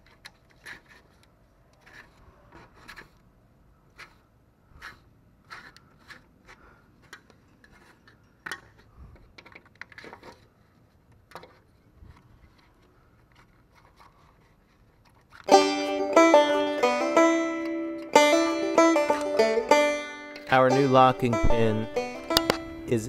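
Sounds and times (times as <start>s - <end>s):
metal scraper scraping and clicking: 0.0s - 3.2s, 4.8s - 8.8s
loud banjo music: 15.5s - 23.0s.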